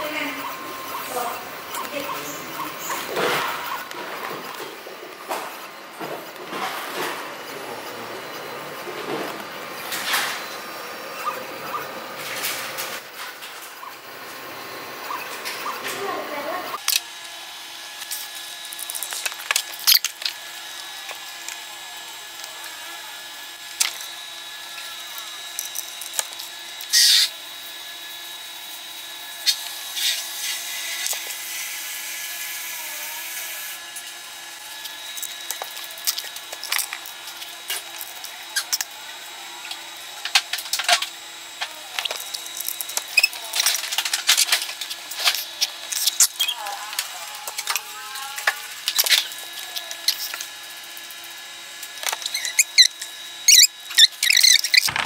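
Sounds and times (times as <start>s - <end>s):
plastic scraping: 54.4s - 55.0s.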